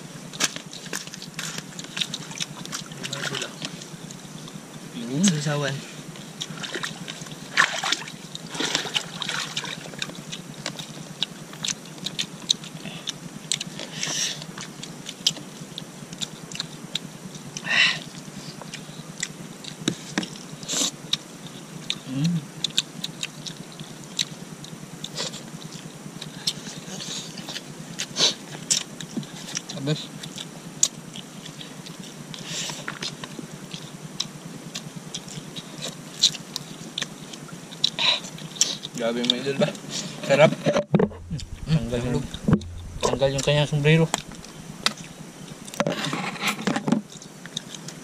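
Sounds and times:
chewing and lip smacks: 0.4 - 5.4, 6.1 - 40.0, 41.0 - 45.8, 47.1 - 48.0
low hum: 40.9 - 46.4.

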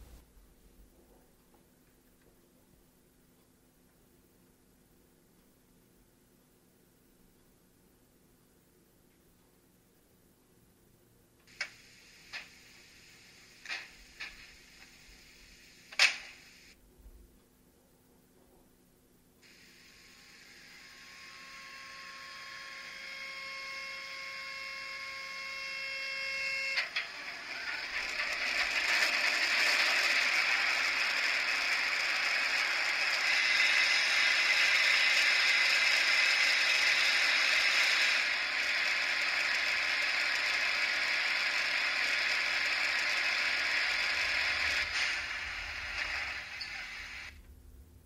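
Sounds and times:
steady whining tone: 19.4 - 47.7
diesel locomotive engine sound: 19.5 - 47.4.

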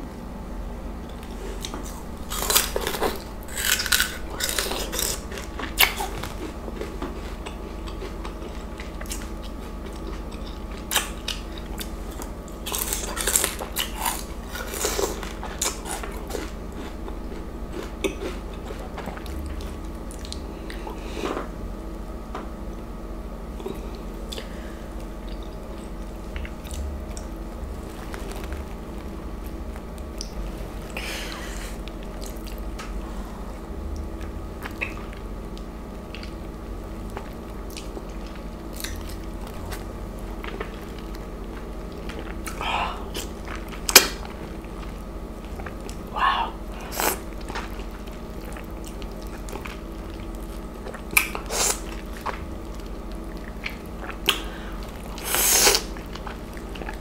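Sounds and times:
steady low hum: 0.0 - 57.0
wet smacks and clicks: 50.9 - 51.5.

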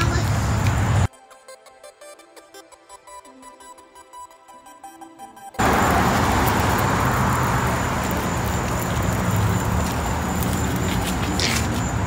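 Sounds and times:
road traffic passing: 0.0 - 1.1, 5.6 - 12.0.

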